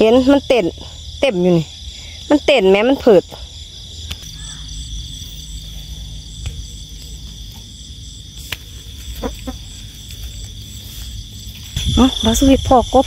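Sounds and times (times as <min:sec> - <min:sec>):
crickets chirping: 0:00.0 - 0:13.0.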